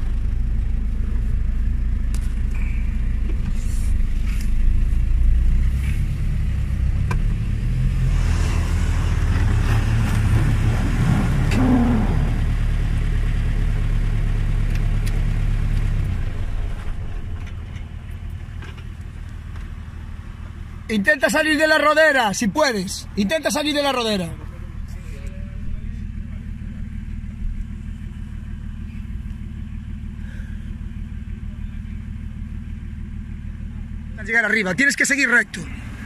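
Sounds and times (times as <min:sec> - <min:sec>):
off-road vehicle engine revving: 0:00.0 - 0:36.0.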